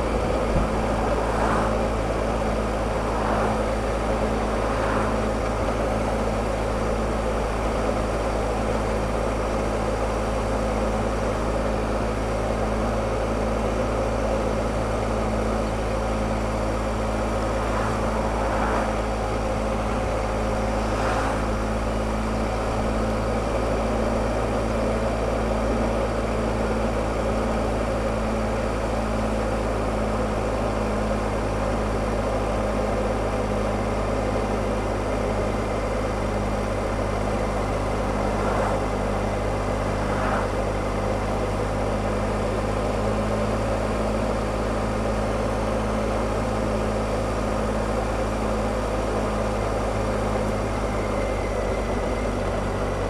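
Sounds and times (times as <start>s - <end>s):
wind and road noise: 0.0s - 53.0s
motorcycle engine cruising: 35.3s - 44.0s.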